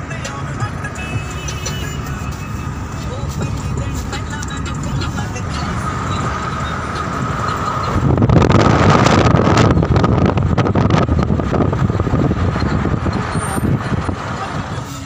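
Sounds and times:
vehicle engine and road noise: 0:00.0 - 0:15.0
wind buffeting microphone: 0:04.2 - 0:14.8.

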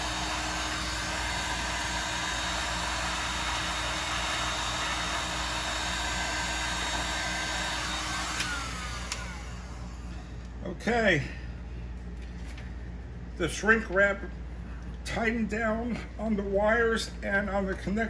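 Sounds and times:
heat gun blowing: 0:00.0 - 0:10.6
fan winding down whine: 0:00.0 - 0:18.0.

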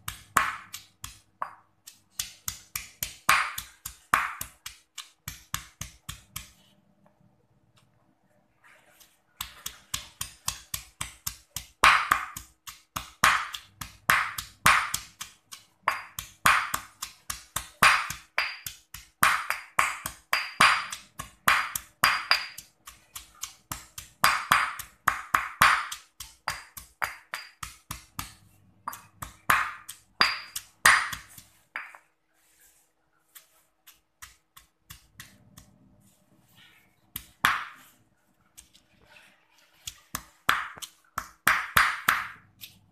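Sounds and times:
stone pestle pounding in mortar: 0:00.0 - 0:06.5, 0:09.4 - 0:32.0, 0:37.2 - 0:37.8, 0:39.8 - 0:42.4.

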